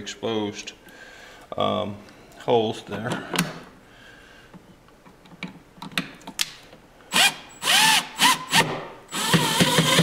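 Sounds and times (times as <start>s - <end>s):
cordless drill driving screws: 7.1s - 10.0s.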